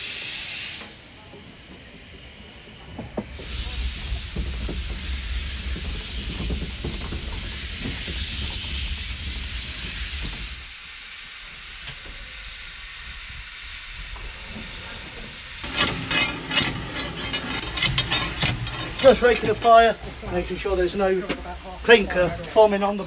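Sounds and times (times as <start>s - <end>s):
steam hissing: 0.0s - 23.0s
steam locomotive working: 0.0s - 23.0s
metal clanks of fire rake: 15.6s - 22.1s.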